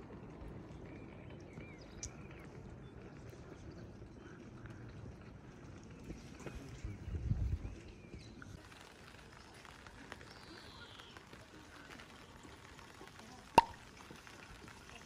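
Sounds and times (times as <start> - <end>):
light rain pattering: 0.0 - 15.0
small drips: 7.8 - 15.0.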